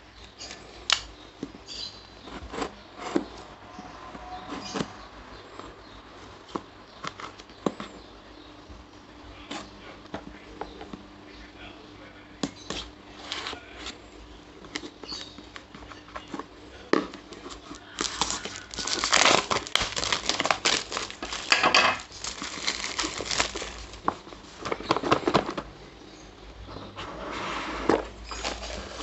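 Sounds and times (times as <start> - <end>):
knife scraping and tapping box: 1.4 - 3.4
plastic wrap crinkling: 17.1 - 25.6, 28.2 - 29.0.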